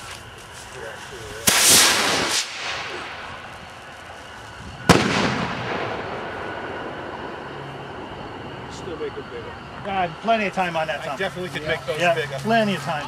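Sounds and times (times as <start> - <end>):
firework launch whoosh: 1.3 - 4.0, 4.6 - 7.4
firework shell bang: 1.4 - 3.5, 4.8 - 7.3.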